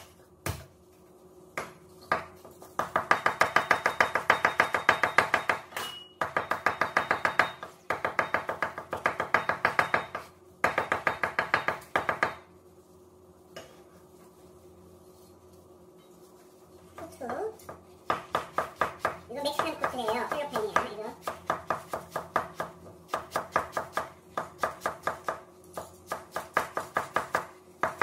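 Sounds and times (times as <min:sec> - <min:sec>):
cleaver chopping on wooden board: 0:18.1 - 0:19.2.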